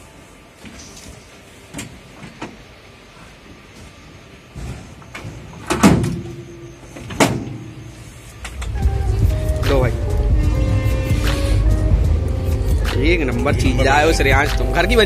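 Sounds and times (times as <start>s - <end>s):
train low rumble: 7.8s - 15.0s.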